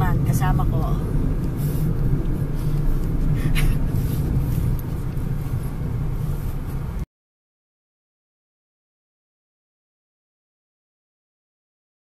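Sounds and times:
car road and engine rumble: 0.0 - 7.1.

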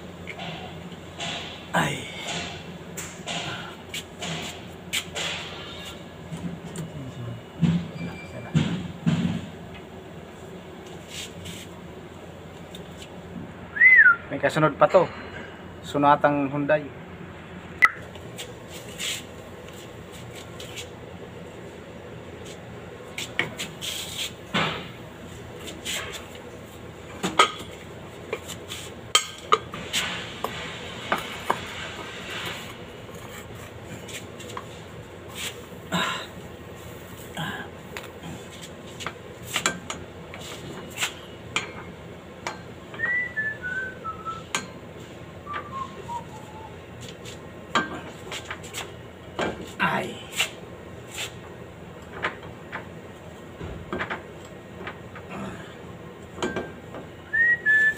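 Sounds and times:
person whistling falling notes: 13.8 - 14.2, 43.0 - 44.5, 45.5 - 46.8, 57.3 - 57.9.

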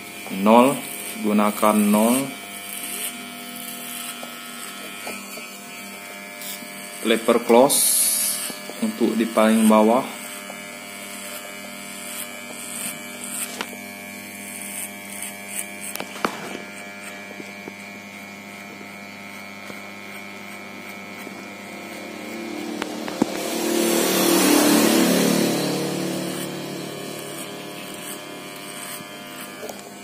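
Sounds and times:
electric hair clippers buzzing: 0.0 - 30.0
rushing sound: 22.1 - 27.6.

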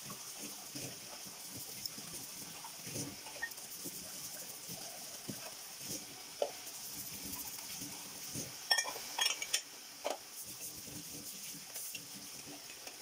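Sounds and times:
dishes and cutlery clinking: 8.7 - 10.2.

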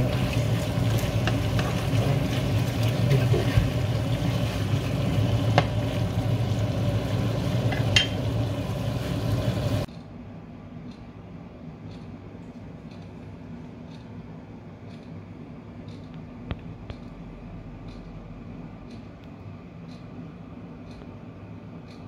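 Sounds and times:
wooden spatula stirring: 0.0 - 8.2
meat sizzling in a frying pan: 0.0 - 9.8.

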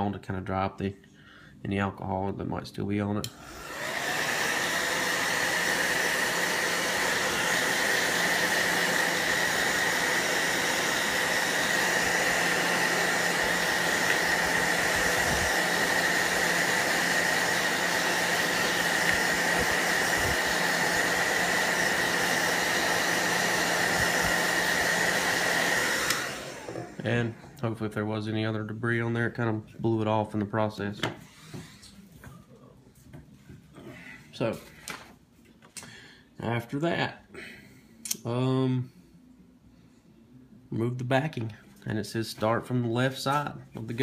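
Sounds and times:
hair dryer running: 3.2 - 27.6.

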